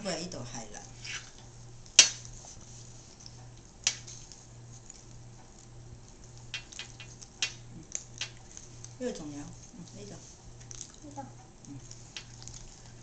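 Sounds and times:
faint low hum: 0:00.0 - 0:13.0
mouth eating clicks and smacks: 0:04.8 - 0:09.0, 0:10.5 - 0:13.0.

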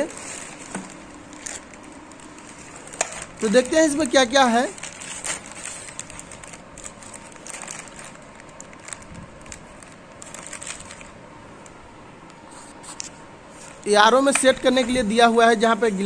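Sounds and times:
plastic bag crinkling: 0:00.0 - 0:11.8.

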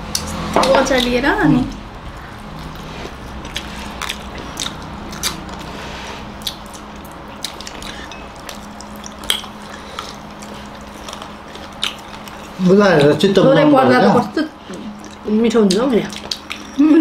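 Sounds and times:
low hum: 0:00.0 - 0:13.4
people chewing and lip smacking: 0:00.0 - 0:13.4, 0:14.4 - 0:17.0.

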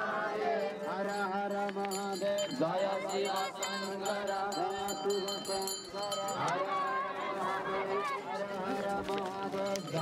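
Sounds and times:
voices chanting: 0:00.0 - 0:10.0
small bells ringing: 0:00.6 - 0:07.4, 0:09.4 - 0:10.0.

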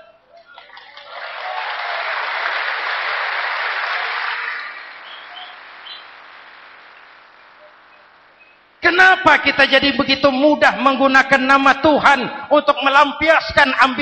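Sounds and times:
audience applauding: 0:00.4 - 0:08.8.

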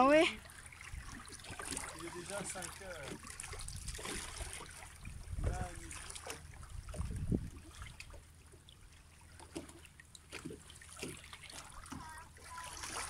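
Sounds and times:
seawater lapping on rocks: 0:00.0 - 0:13.0
low microphone rumble: 0:05.0 - 0:06.0, 0:06.6 - 0:07.8.

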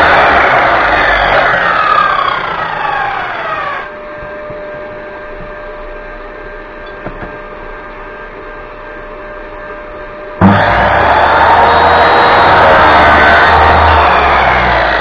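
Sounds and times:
saw motor winding down: 0:00.0 - 0:04.0, 0:10.4 - 0:15.0
steady motor hum: 0:00.0 - 0:15.0.

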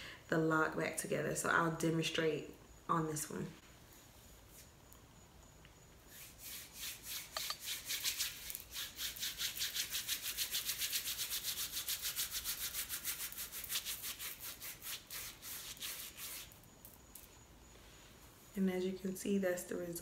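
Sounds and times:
hands rubbing hair swishing: 0:06.1 - 0:12.2, 0:12.8 - 0:16.6.

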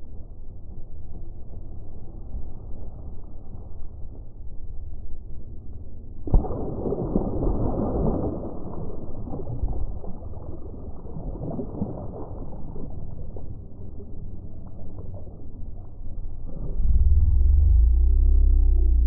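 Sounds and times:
fish splashing at surface: 0:06.3 - 0:16.0.

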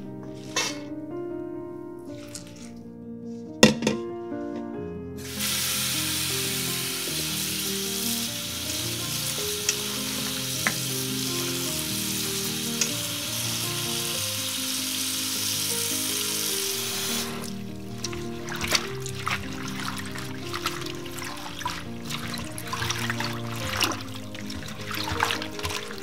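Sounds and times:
tap water running into colander: 0:05.2 - 0:26.0.

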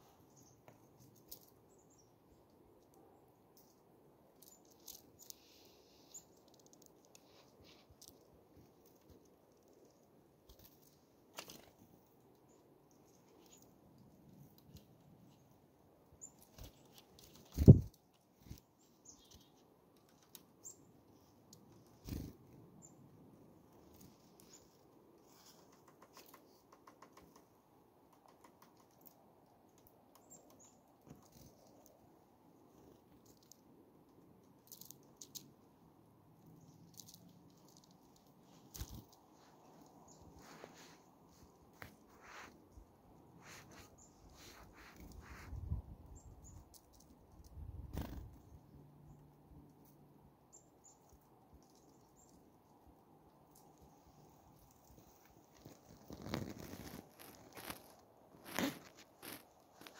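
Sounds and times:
small wing flutters: 0:16.4 - 0:18.6, 0:47.8 - 0:48.4, 0:54.9 - 0:59.9.

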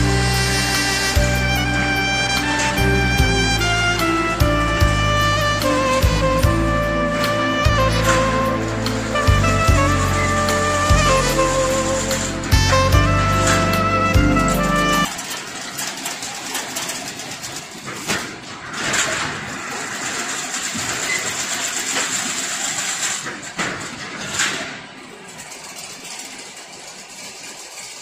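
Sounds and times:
music: 0:00.0 - 0:15.1
fence weaving machine running: 0:00.0 - 0:28.0.

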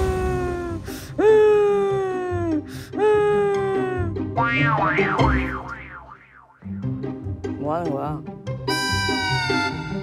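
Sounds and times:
woman pretend crying: 0:00.2 - 0:04.2.

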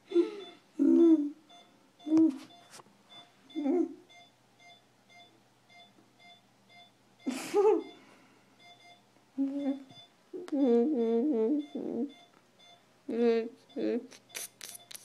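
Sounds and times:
person making muffled vocal sounds: 0:00.1 - 0:01.4, 0:09.4 - 0:12.1
patient monitor beeping: 0:00.1 - 0:15.0.

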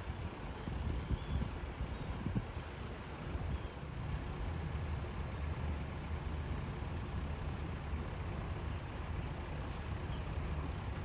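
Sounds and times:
wind on microphone: 0:00.1 - 0:03.6.

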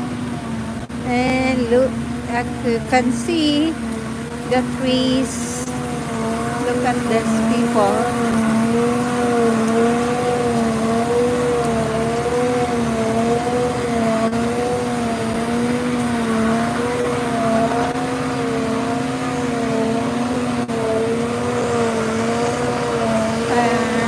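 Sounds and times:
machinery droning hum: 0:00.0 - 0:24.0.

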